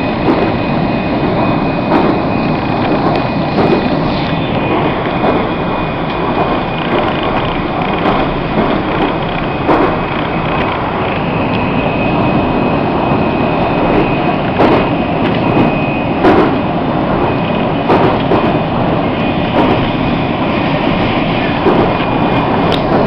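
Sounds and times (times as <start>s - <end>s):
faint high whine: 0.0s - 23.0s
train wheels rumbling on rails: 0.0s - 23.0s
sharp knocks: 0.2s - 0.6s, 1.2s - 11.2s, 13.9s - 16.6s, 17.2s - 18.6s, 19.5s - 20.0s, 21.5s - 23.0s.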